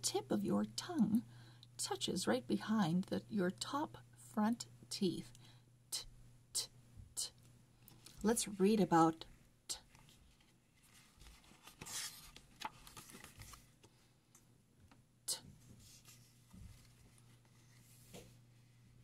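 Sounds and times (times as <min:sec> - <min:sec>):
book pages turning: 0:09.8 - 0:13.9, 0:15.7 - 0:18.4.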